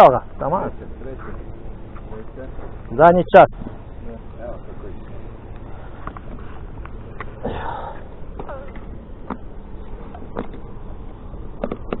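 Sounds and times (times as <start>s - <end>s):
low background rumble: 0.0s - 12.0s
breathy noise: 7.3s - 8.9s.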